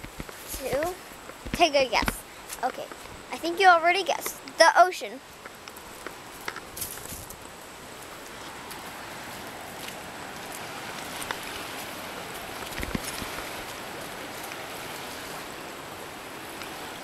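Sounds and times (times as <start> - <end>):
sea surf and lapping water: 0.0 - 17.0
footsteps on coral gravel: 5.4 - 15.2.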